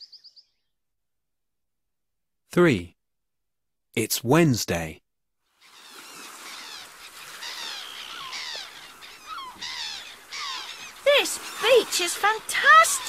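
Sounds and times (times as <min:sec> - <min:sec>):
gulls calling: 0:05.6 - 0:13.0
surf hissing: 0:09.9 - 0:13.0.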